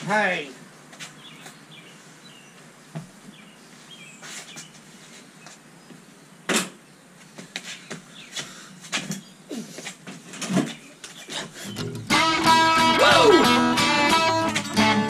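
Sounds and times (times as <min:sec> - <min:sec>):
plastic chair knocks and rustles: 0:06.5 - 0:06.8, 0:10.0 - 0:10.9.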